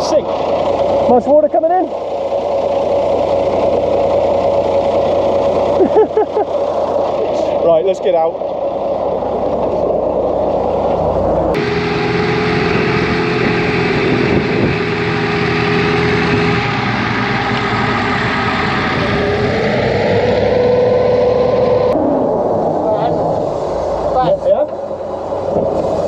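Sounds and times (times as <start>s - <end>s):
truck engine running: 0.0s - 26.0s.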